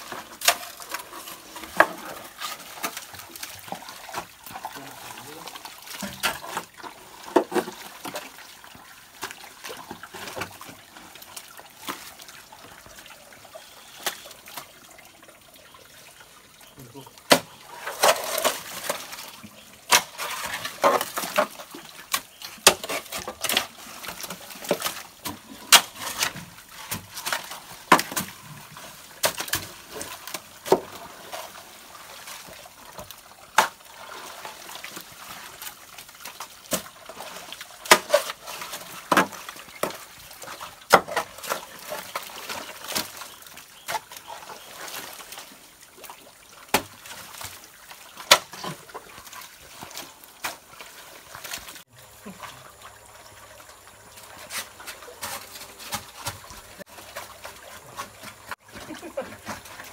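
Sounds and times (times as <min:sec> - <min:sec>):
wet squelches and splashes: 0:00.0 - 0:59.9.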